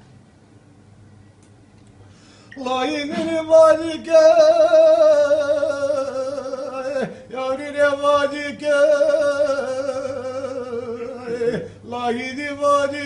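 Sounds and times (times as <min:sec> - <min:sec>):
man breathing: 0:02.0 - 0:02.6
man singing unaccompanied: 0:02.5 - 0:13.0.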